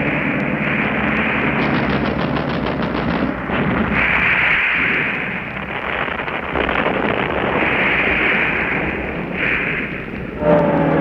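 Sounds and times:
battle noise with low rumble: 0:00.0 - 0:11.0
recording hiss: 0:03.8 - 0:11.0.

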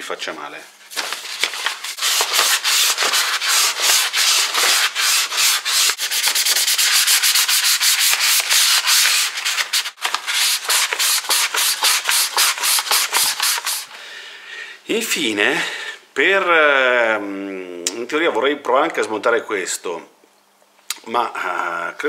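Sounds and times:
sandpaper rubbing on steel: 0:01.8 - 0:13.9.

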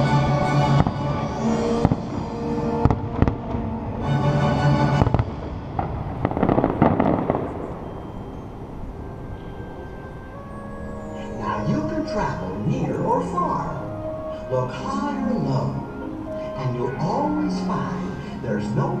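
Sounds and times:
fireworks show music: 0:00.0 - 0:19.0
firework crackling: 0:00.8 - 0:03.7, 0:04.9 - 0:08.5
firework shells bursting: 0:05.0 - 0:08.2.

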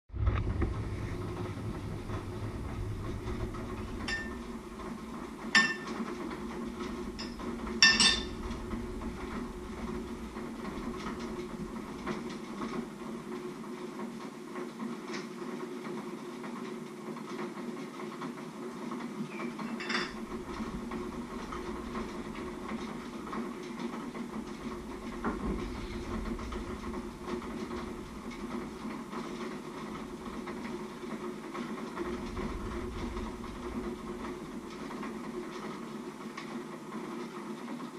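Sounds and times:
steady low hum: 0:00.1 - 0:14.0, 0:19.8 - 0:36.3
pots and plates clinking: 0:04.1 - 0:04.5, 0:05.5 - 0:06.0, 0:07.2 - 0:08.4, 0:19.6 - 0:20.2.

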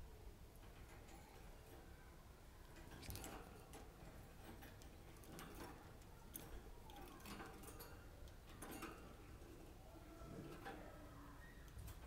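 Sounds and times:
bird claws clicking on cage: 0:02.8 - 0:09.2.

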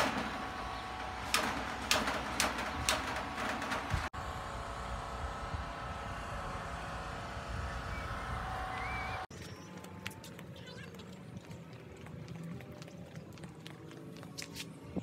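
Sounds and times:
metal roof panel knocks: 0:00.0 - 0:04.1
faint humming tones: 0:00.0 - 0:10.2
outdoor background noise: 0:00.0 - 0:15.0.

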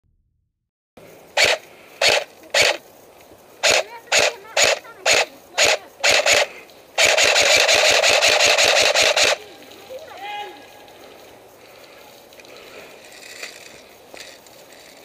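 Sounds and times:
airsoft rifle full-auto burst: 0:01.4 - 0:02.8, 0:03.6 - 0:09.5
airsoft rifle single shots: 0:03.6 - 0:09.4.

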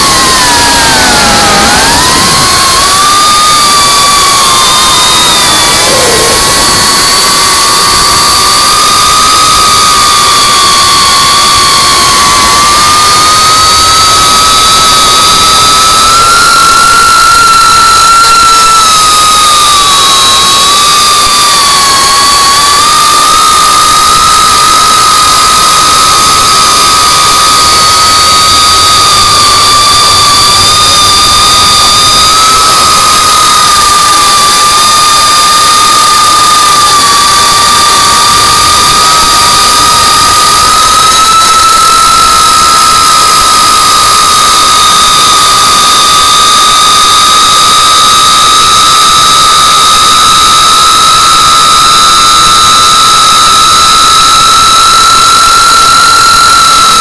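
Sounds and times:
drone motors whining: 0:00.0 - 0:17.6, 0:18.4 - 0:48.7.

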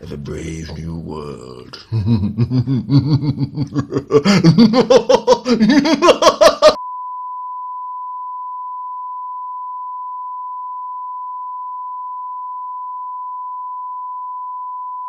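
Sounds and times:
steady test tone beep: 0:06.8 - 0:15.0.

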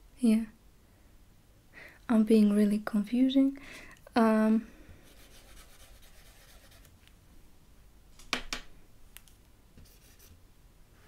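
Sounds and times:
marker rubbing on whiteboard: 0:05.1 - 0:06.9, 0:09.8 - 0:10.4.

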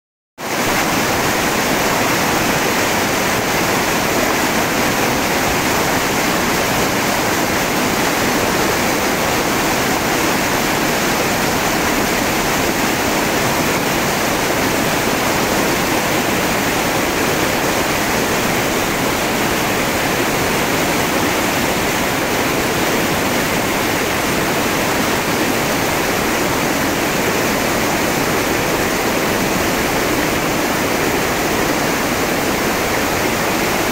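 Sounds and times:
river rapids rushing: 0:00.4 - 0:33.9.

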